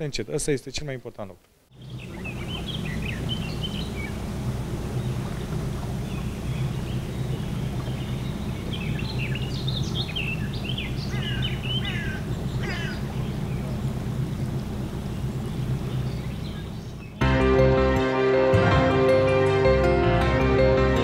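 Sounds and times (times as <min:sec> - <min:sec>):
birds calling and chirping: 0:01.7 - 0:17.2
steady low hum: 0:01.7 - 0:17.3.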